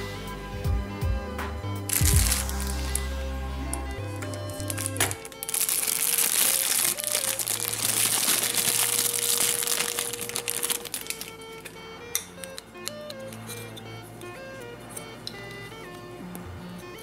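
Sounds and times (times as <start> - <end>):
background music: 0.0 - 17.0
plastic bag crinkling: 1.9 - 3.0, 3.8 - 11.8.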